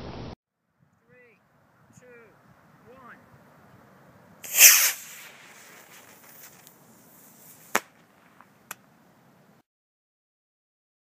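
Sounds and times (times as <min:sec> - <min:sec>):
model rocket motor whoosh: 0:04.5 - 0:05.4.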